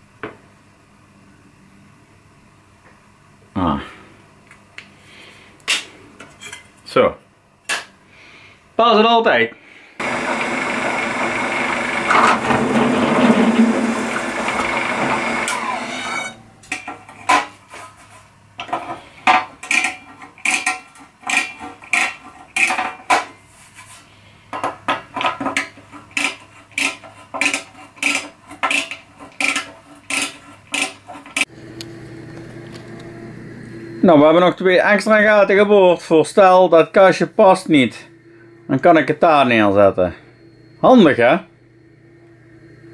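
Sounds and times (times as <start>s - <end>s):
deburring tool rasping scrapes: 10.0s - 16.4s, 25.8s - 31.5s
drill press whining through metal: 10.0s - 16.7s, 26.8s - 34.0s.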